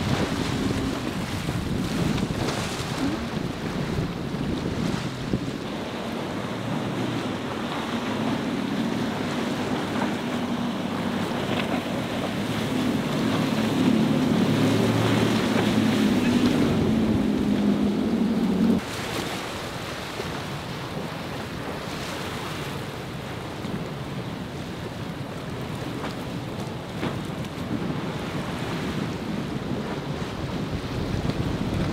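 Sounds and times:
wind noise on microphone: 0:00.0 - 0:19.3, 0:20.2 - 0:31.9
breaking surf: 0:00.0 - 0:23.5
outboard engines droning: 0:00.0 - 0:31.9.

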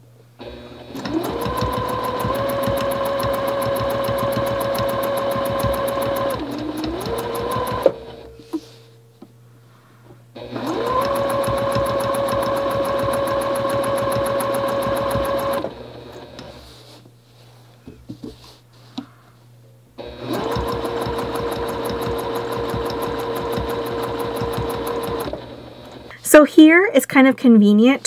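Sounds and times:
sewing machine stitching: 0:00.4 - 0:08.2, 0:10.4 - 0:16.6, 0:20.0 - 0:26.1.

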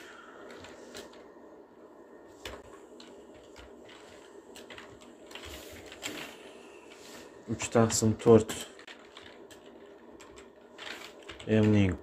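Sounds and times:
computer keyboard and mouse clicks: 0:02.4 - 0:06.3, 0:08.8 - 0:12.0.

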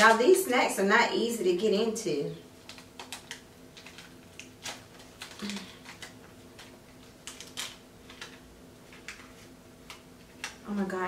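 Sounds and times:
plastic packet crinkling: 0:02.6 - 0:10.6.

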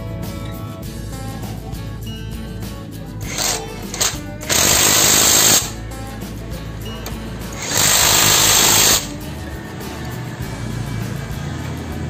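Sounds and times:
impact wrench hammering: 0:03.2 - 0:05.8, 0:07.0 - 0:09.2.

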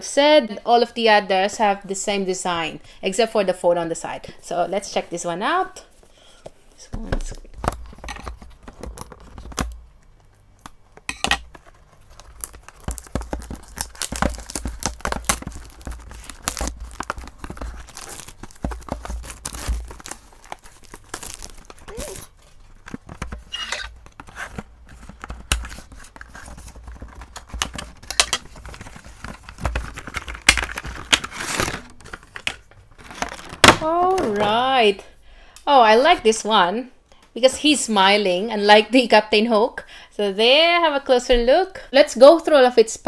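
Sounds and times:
plastic bag crinkling: 0:07.8 - 0:34.6
cardboard tearing: 0:11.5 - 0:34.2.

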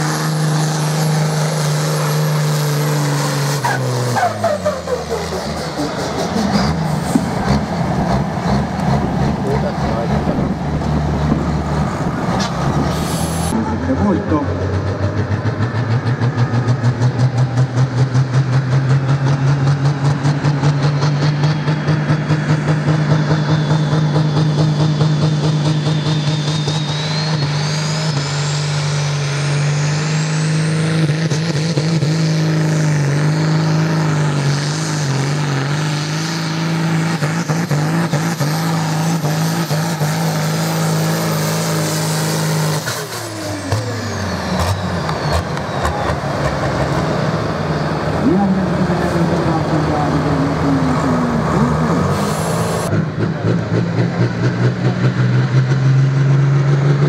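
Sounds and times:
tractor engine under load: 0:00.0 - 0:25.8
turbocharger whine: 0:00.0 - 0:57.0.

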